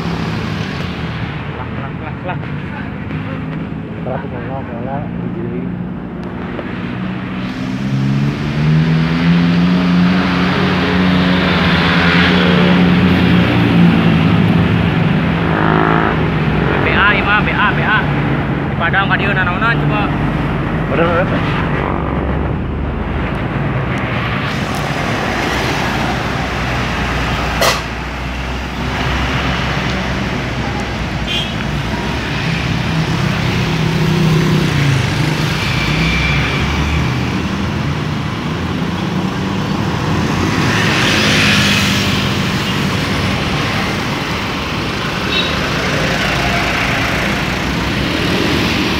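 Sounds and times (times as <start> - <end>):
road traffic passing: 0.0 - 48.9
sharp knock: 27.6 - 28.0.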